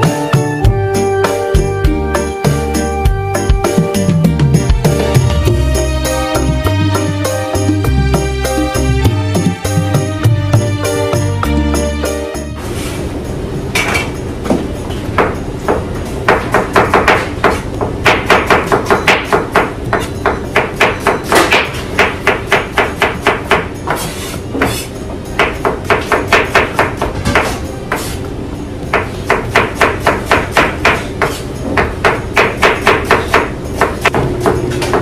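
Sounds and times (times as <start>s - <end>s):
steady background hum: 9.7s - 35.0s.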